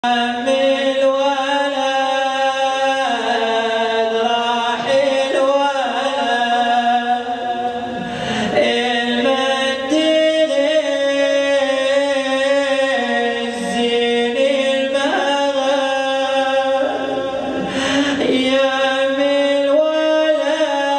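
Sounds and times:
man chanting into a microphone: 0:00.0 - 0:20.9.

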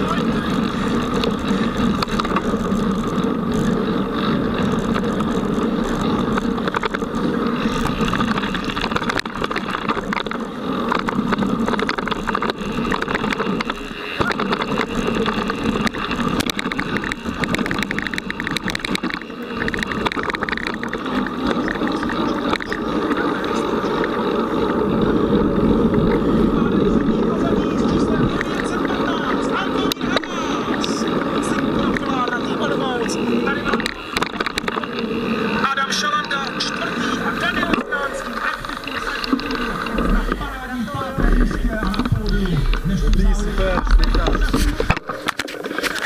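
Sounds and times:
mountain bike rattling on dirt trail: 0:00.0 - 0:46.0.

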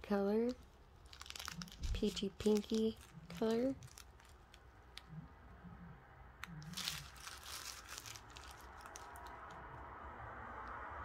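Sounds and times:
plastic bags crinkling: 0:00.0 - 0:05.1, 0:06.6 - 0:09.6.

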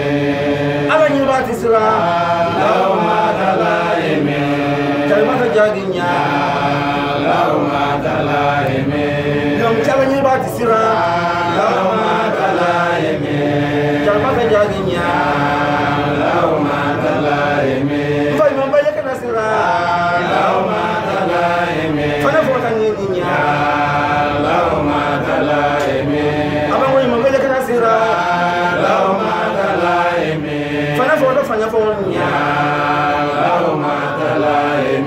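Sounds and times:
man chanting: 0:00.0 - 0:35.0.

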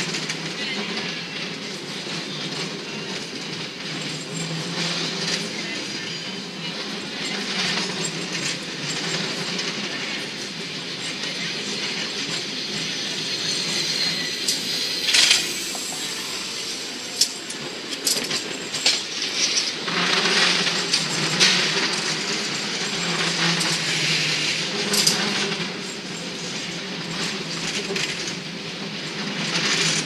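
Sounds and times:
cable car rumbling: 0:00.0 - 0:30.0
metallic clanks and rattles: 0:17.1 - 0:25.3.

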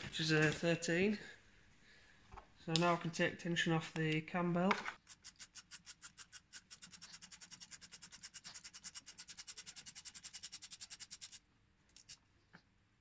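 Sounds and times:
ratchet wrench clicking rapidly: 0:05.0 - 0:11.4.

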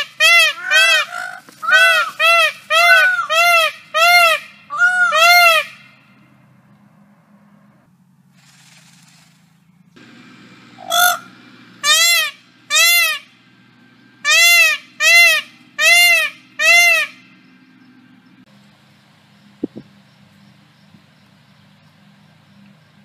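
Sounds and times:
peacock trumpeting calls: 0:00.0 - 0:06.2, 0:10.8 - 0:13.4, 0:14.2 - 0:17.4.

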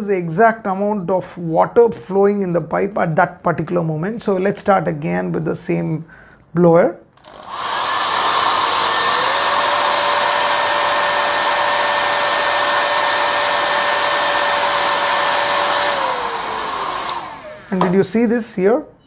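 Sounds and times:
hair dryer blowing air: 0:07.2 - 0:18.1.

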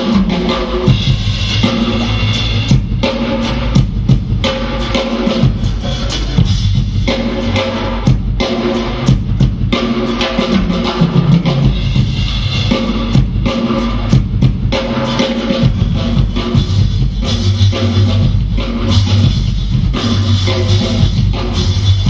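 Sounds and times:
drum solo: 0:00.0 - 0:22.0.

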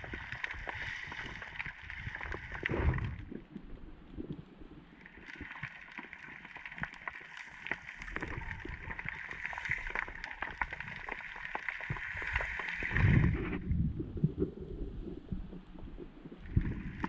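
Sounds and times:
sharp clicks and crackles: 0:00.0 - 0:13.6.

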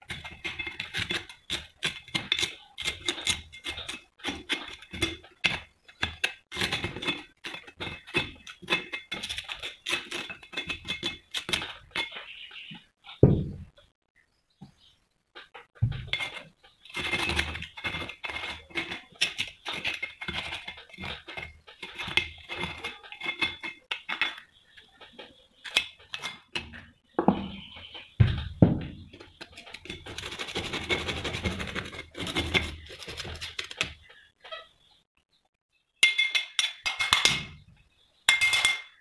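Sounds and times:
scraping of crumbling rust: 0:00.0 - 0:13.2, 0:15.3 - 0:34.7
metal knocks: 0:26.6 - 0:29.7.

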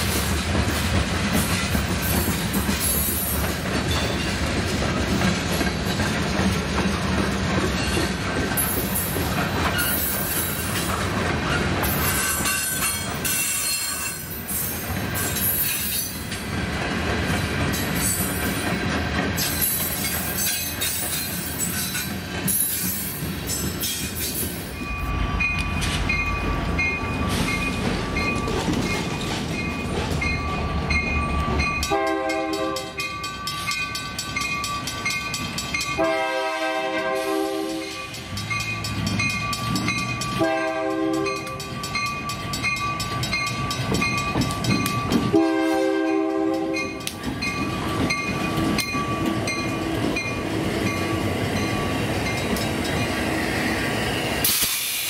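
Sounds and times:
passing train rumble: 0:00.0 - 0:55.0
bell clanging: 0:24.7 - 0:32.0
train horn blasts: 0:31.9 - 0:33.1, 0:36.0 - 0:38.1, 0:40.4 - 0:41.6, 0:45.3 - 0:47.0.

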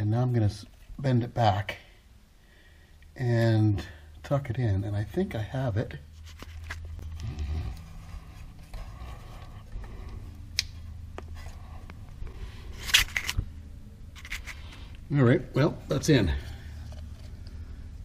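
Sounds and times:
low steady rumble: 0:03.8 - 0:18.0.

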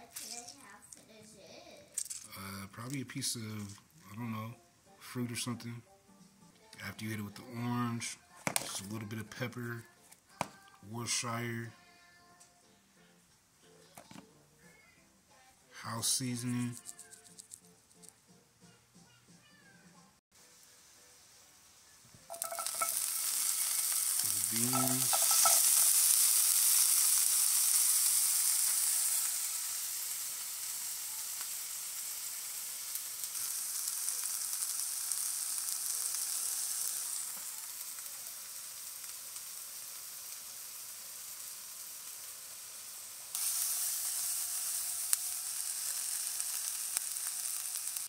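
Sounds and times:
vegetables sizzling in oil: 0:20.4 - 0:48.0.

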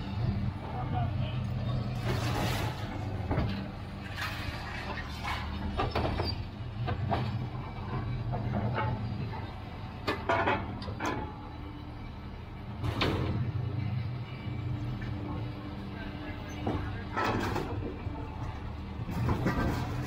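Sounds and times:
diesel engine running: 0:00.0 - 0:20.0
scrap metal clanking: 0:19.1 - 0:20.0.

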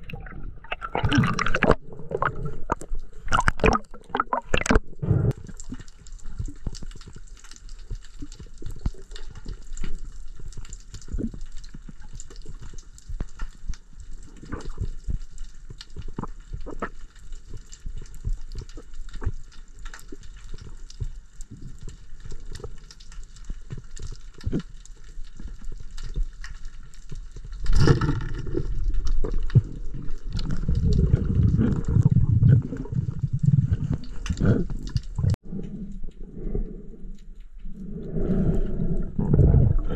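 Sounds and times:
low rushing of water: 0:00.0 - 0:09.4
underwater clicks and crackles: 0:00.0 - 0:39.9.

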